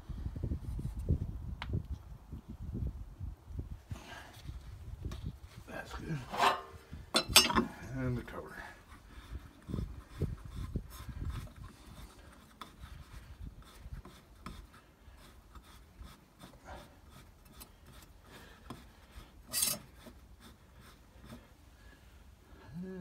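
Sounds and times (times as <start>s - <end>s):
rag rubbing on plastic cover: 8.9s - 21.6s
short loud rasp: 9.2s - 21.6s.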